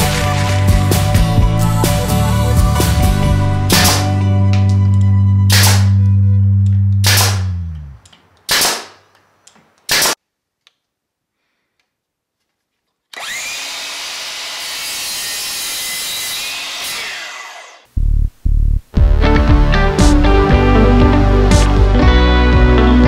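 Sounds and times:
background music: 0.0 - 8.0, 18.0 - 23.0
nail gun firing: 5.5 - 6.0, 7.0 - 7.6, 8.4 - 9.0, 9.8 - 10.2
miter saw cutting wood: 13.2 - 17.9.

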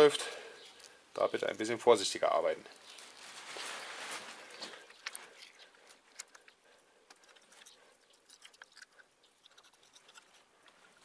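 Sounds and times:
spoon scooping tomato flesh: 4.9 - 11.0.

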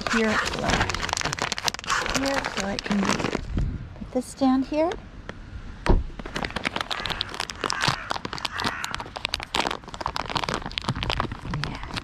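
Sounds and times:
paper bag crinkling: 0.0 - 3.6, 6.2 - 12.0.

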